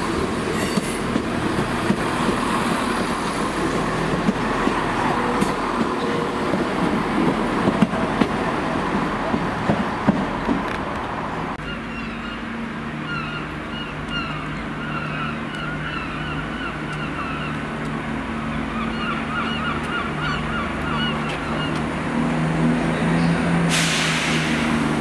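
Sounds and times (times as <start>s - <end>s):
diesel train engine hum: 0.0s - 25.0s
birds chirping: 11.6s - 22.1s.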